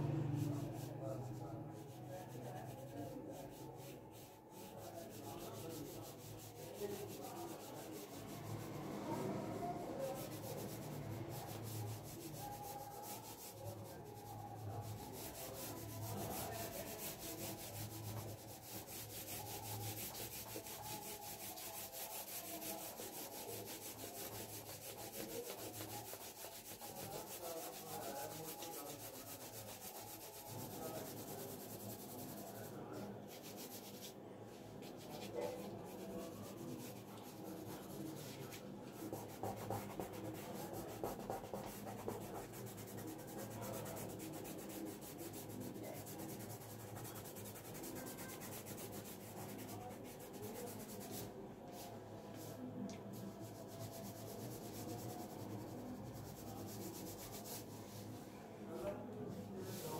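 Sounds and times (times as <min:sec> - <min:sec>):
pencil scratching on paper: 0:10.0 - 0:34.2, 0:34.8 - 0:51.3.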